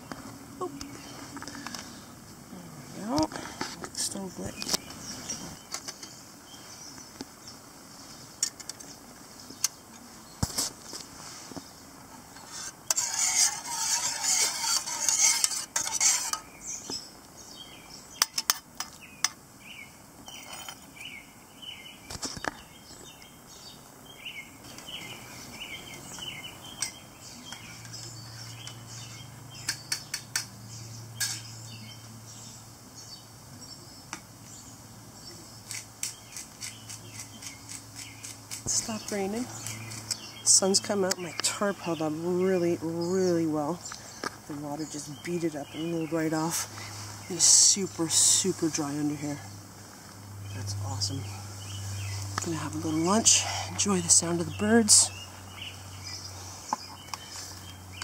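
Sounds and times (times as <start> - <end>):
birds chirping: 0.0 - 58.0
metal cup clinking and scraping: 12.4 - 16.5, 20.3 - 20.9.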